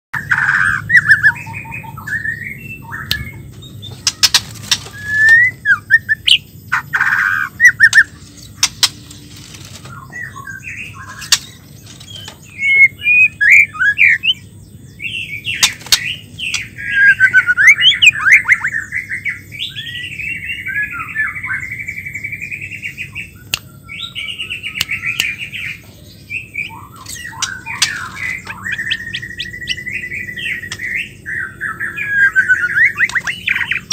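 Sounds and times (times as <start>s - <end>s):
bird whistling and warbling song: 0.2s - 33.9s
sharp clicks: 7.9s - 9.8s.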